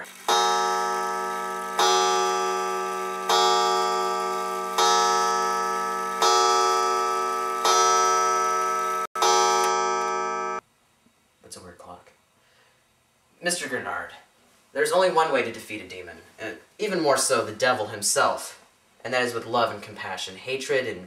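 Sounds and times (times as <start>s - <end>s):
clock striking on wire gong: 0.3s - 10.6s.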